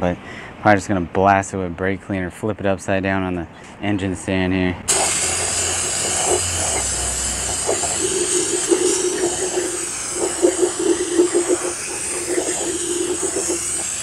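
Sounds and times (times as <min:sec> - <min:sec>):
aerosol can spraying hiss: 0:04.9 - 0:14.0.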